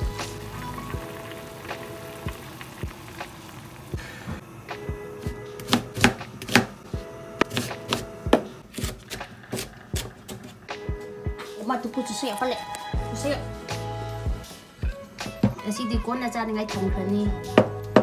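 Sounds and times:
background music: 0.0 - 18.0
knife chopping on cutting board: 5.6 - 6.7, 7.4 - 10.4.

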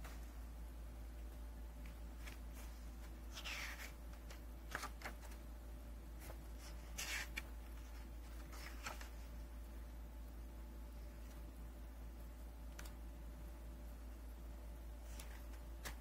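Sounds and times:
paper and card rustling: 1.8 - 5.4, 6.2 - 9.4, 15.0 - 16.0.

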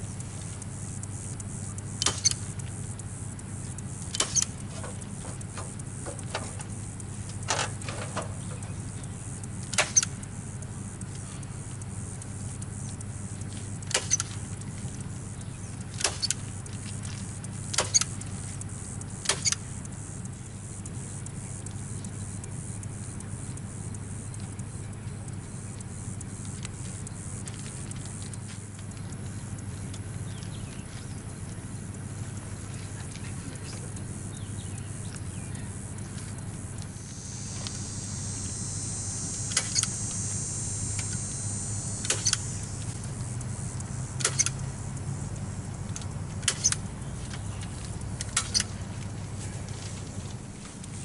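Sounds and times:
steady low hum: 0.0 - 51.0
staple gun snapping: 44.2 - 44.5.

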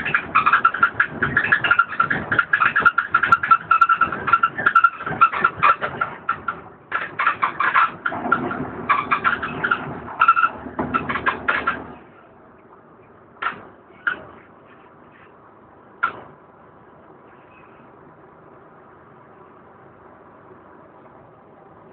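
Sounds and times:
bus fittings rattling and squeaking: 0.0 - 16.6
bus engine running: 0.0 - 21.9
low steady hum: 0.0 - 21.9.

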